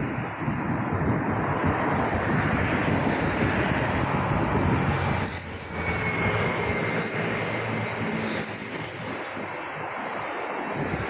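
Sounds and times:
road traffic: 0.0s - 11.0s
train rushing and rumbling overhead: 0.0s - 11.0s
thin high whine: 5.1s - 10.2s.

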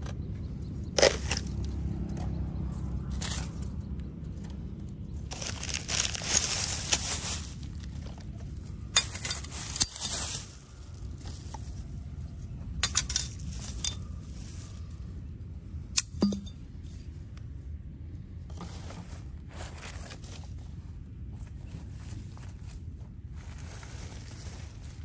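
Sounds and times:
low steady rumble: 0.0s - 25.0s
plastic bags rustling: 5.2s - 11.9s.

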